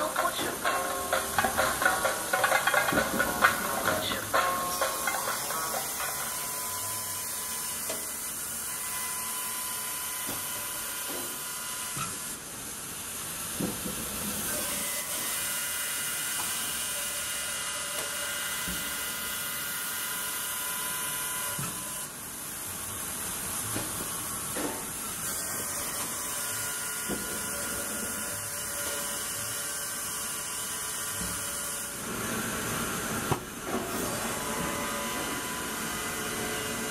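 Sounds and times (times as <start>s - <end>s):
sawmill machinery din: 0.0s - 12.0s, 23.6s - 36.9s
wood knocking on conveyors: 0.1s - 6.2s.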